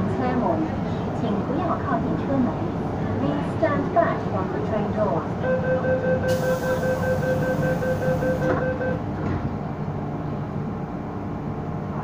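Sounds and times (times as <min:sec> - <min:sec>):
train carriage low rumble: 0:00.0 - 0:12.0
rapid door warning beeping: 0:05.4 - 0:09.0
train doors shutting with a knock: 0:06.3 - 0:09.6.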